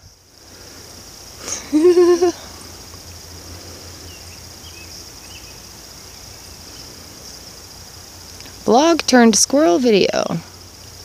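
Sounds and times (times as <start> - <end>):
faint bird chirps: 0.0 - 7.5
crickets chirping: 0.0 - 11.0
person humming: 1.4 - 2.5.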